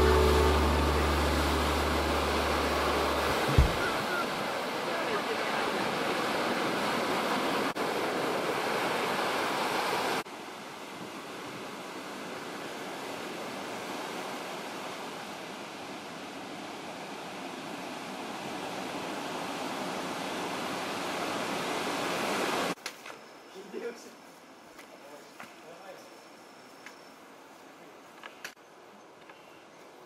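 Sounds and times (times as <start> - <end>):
ocean waves breaking: 0.0 - 10.2.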